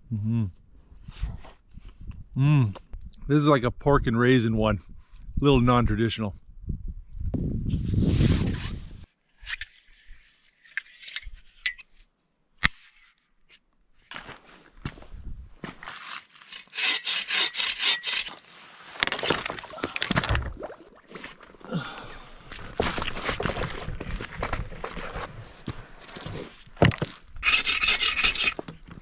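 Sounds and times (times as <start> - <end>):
bow saw rasping through log: 16.4 - 18.4, 27.4 - 28.7.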